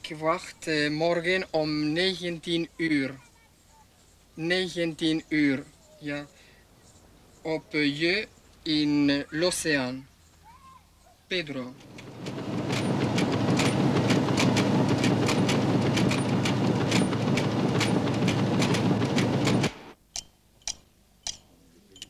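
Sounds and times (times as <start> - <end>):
printing press clattering: 11.8 - 20.0.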